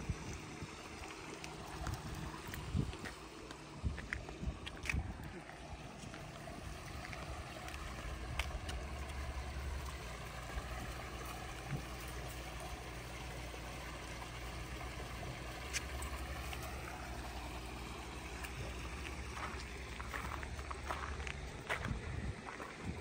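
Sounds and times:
low steady rumble: 0:00.0 - 0:23.0
small waterfall splashing into pond: 0:05.4 - 0:21.6.

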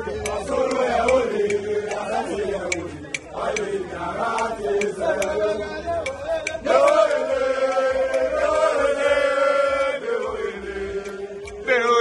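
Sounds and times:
men singing chant in unison: 0:00.0 - 0:12.0
hand claps: 0:06.0 - 0:08.3.

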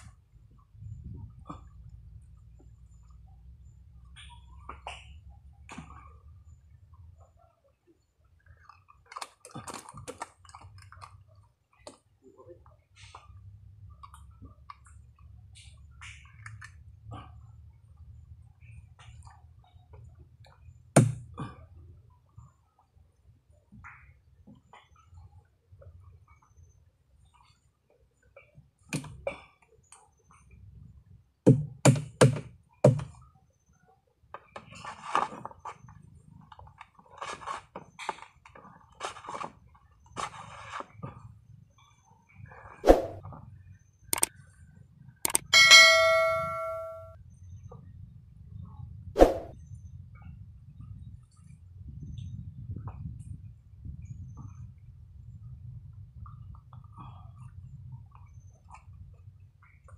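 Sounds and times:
handling clicks and crackles: 0:08.6 - 0:12.0
low steady hum: 0:41.3 - 0:59.9.

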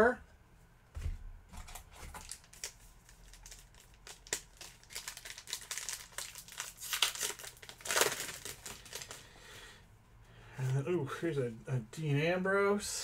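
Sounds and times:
plastic wrapper crinkling: 0:01.6 - 0:09.3.

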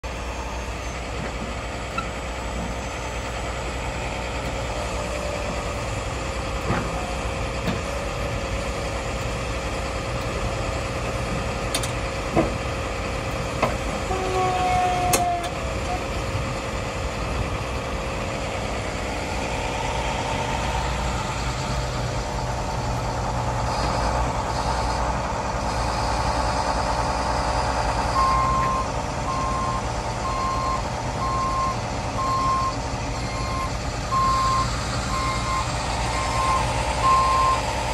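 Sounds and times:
truck engine idling: 0:00.0 - 0:37.9
reversing alarm beeping: 0:28.1 - 0:37.7.

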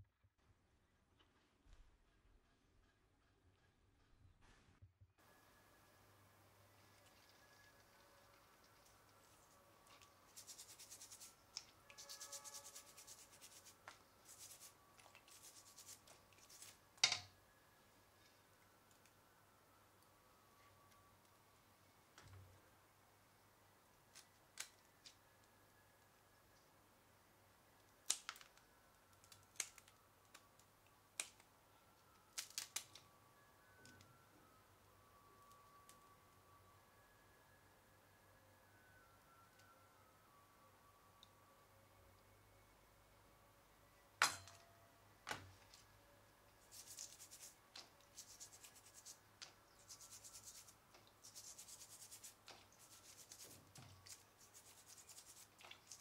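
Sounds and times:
toothbrush scrubbing shell: 0:07.1 - 0:16.7.

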